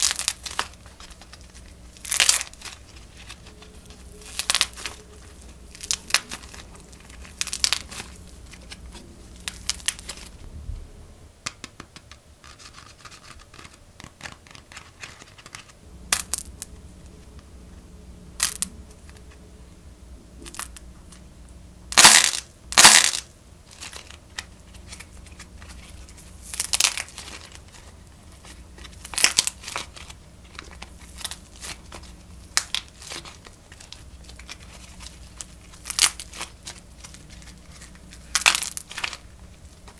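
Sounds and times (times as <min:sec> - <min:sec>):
modelling clay crackling and tearing: 0:00.0 - 0:10.4, 0:21.9 - 0:39.9.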